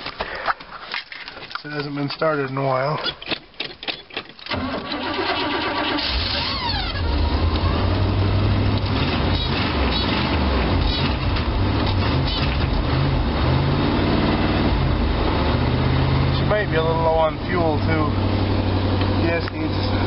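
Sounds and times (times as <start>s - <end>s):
engine cranking: 2.4s - 7.8s
engine running and revving: 6.0s - 20.0s.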